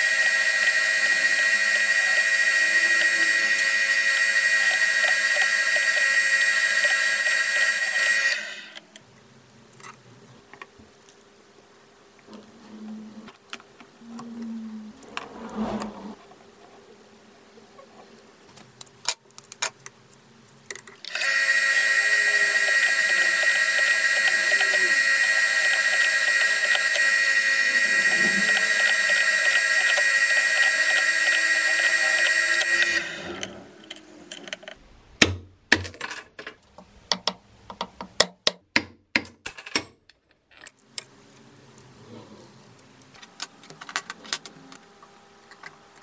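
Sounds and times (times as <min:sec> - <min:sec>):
high-pitched power tool running: 0:00.0 - 0:08.8, 0:21.1 - 0:33.5
tools clicking and knocking: 0:28.5 - 0:41.1.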